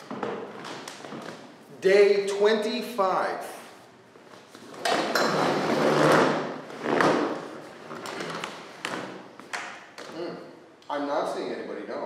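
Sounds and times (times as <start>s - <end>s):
objects scraping and clattering: 4.5s - 9.2s.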